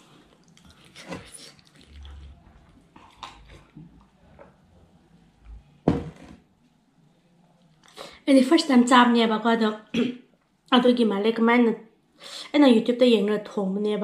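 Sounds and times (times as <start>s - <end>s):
knock: 5.8s - 6.4s.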